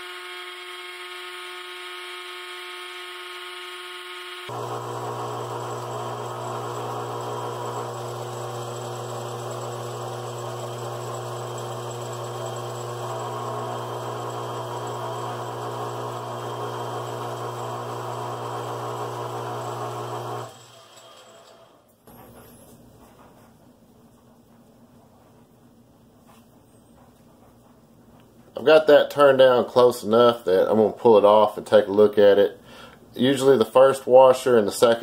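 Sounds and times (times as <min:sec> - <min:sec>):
metal lathe humming: 0:00.0 - 0:21.5.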